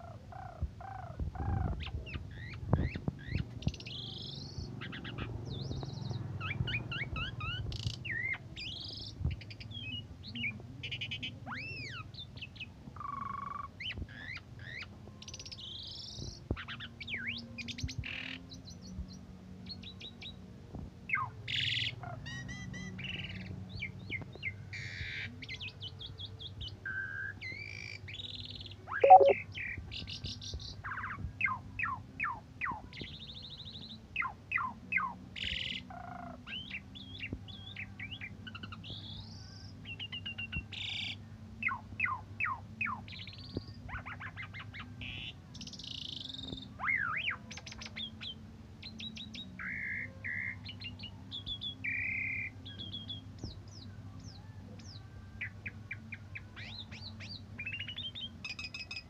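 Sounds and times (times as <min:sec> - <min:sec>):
starling singing: 0:29.0 - 0:29.4.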